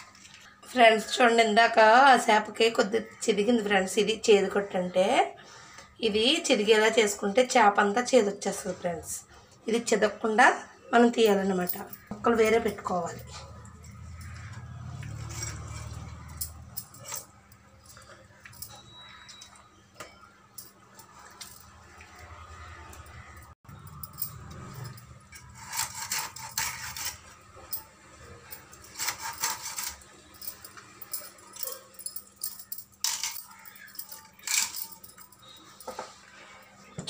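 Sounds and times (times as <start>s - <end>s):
bangles jingling: 11.2s - 21.9s, 22.9s - 36.7s
blade scraping fish: 25.4s - 27.3s.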